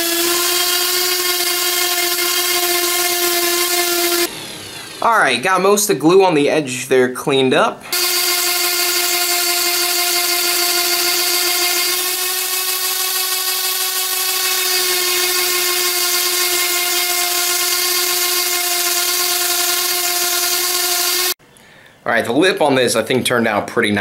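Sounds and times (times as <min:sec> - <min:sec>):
orbital sander whine: 0:00.0 - 0:05.4, 0:07.9 - 0:21.4.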